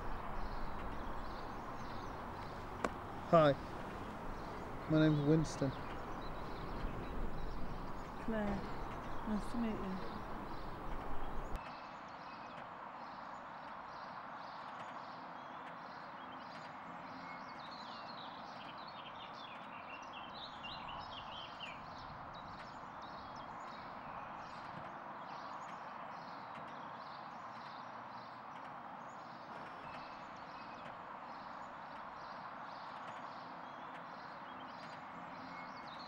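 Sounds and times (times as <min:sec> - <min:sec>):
outdoor background hiss: 0:00.0 - 0:14.6.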